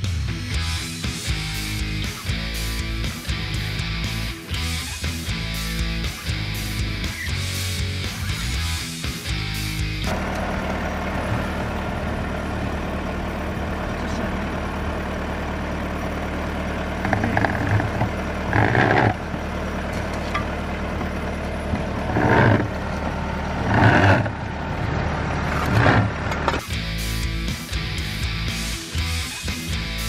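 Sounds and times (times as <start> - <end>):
tractor engine under load: 10.0 - 27.0.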